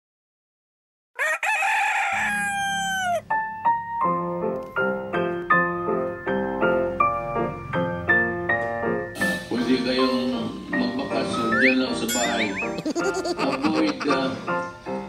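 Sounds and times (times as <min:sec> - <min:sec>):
rooster crowing: 0:01.2 - 0:03.3
keyboard melody: 0:02.8 - 0:15.0
keyboard bass line: 0:11.2 - 0:14.2.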